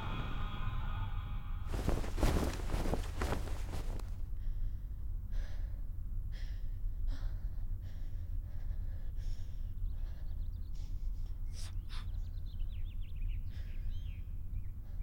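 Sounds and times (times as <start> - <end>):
steady low rumble: 1.7 - 4.8.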